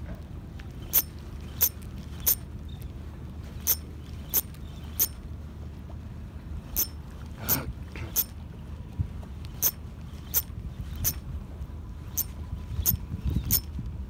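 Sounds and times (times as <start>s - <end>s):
wind and water rumble: 0.0s - 14.0s
fishing reel clicks: 0.9s - 2.4s, 3.7s - 5.2s, 8.1s - 8.3s, 9.6s - 11.2s, 12.2s - 13.7s.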